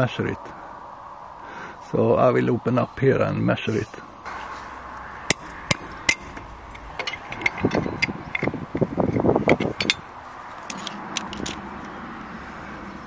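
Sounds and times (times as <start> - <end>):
metal scraping: 3.6 - 11.6
metal clanking and clicking: 5.3 - 11.6.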